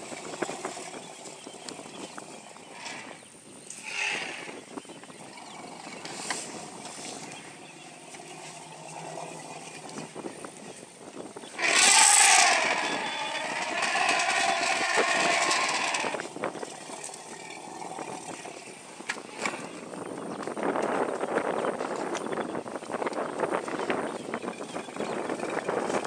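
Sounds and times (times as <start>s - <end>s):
elephant trumpeting: 3.8s - 4.6s, 5.3s - 10.2s, 11.5s - 18.6s.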